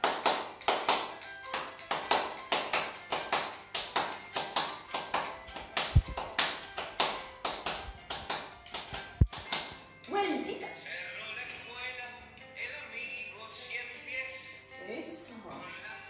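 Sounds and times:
hand clapping in rhythm: 0.0s - 9.9s
folk dance music: 0.0s - 12.3s.

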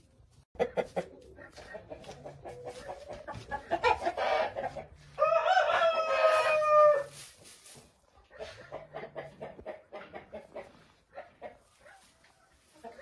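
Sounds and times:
chickens clucking: 0.0s - 13.0s
rooster crowing: 5.2s - 7.1s.

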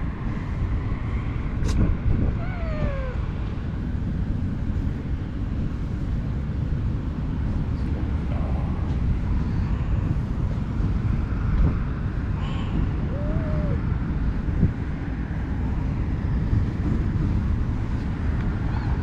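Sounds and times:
wind buffeting microphone: 0.0s - 19.0s
cat meowing faintly: 2.3s - 3.2s, 13.1s - 13.8s.

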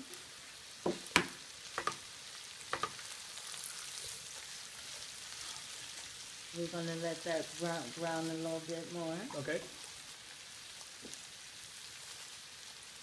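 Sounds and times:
sausage sizzling in a skillet: 0.0s - 13.0s
spatula scraping a pan: 2.8s - 6.2s.

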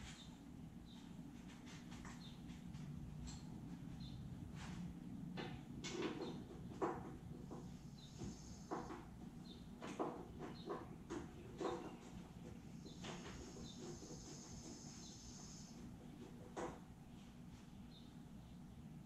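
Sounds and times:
steady low hum: 0.0s - 19.0s
tools and parts knocking: 5.4s - 7.7s, 9.8s - 13.4s.

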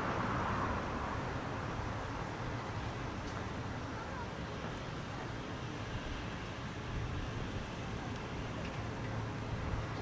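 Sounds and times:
passing car tyre noise: 0.0s - 10.0s
traffic rumble: 0.0s - 10.0s.

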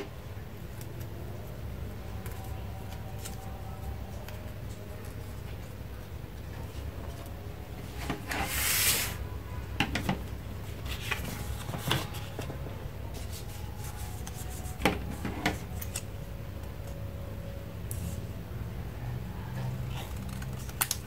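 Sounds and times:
paper rustling: 10.7s - 16.0s.

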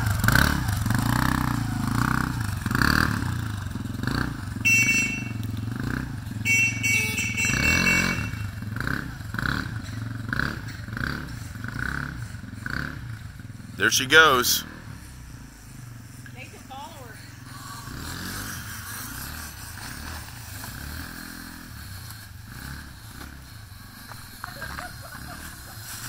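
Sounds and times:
small atv engine running: 0.0s - 26.0s.

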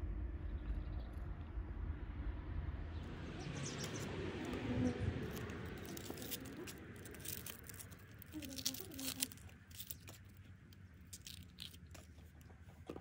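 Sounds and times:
onion skin crackling and tearing: 3.8s - 12.7s.

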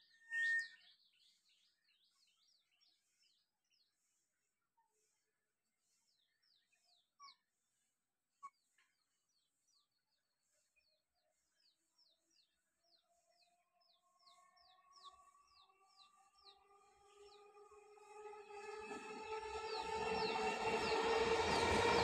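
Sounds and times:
faint bird chirps: 0.0s - 1.4s
distant electric train hum: 15.1s - 22.0s.

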